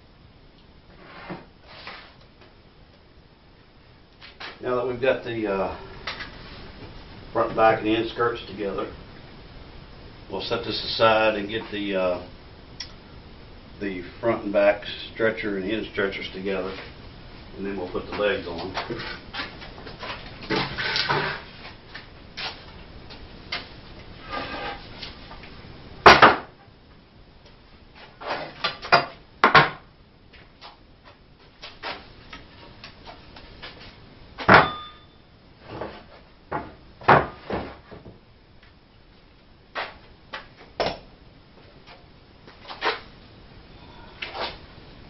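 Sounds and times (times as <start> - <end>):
wooden boards knocking and clattering: 26.0 - 26.6, 28.4 - 29.8, 35.8 - 38.2.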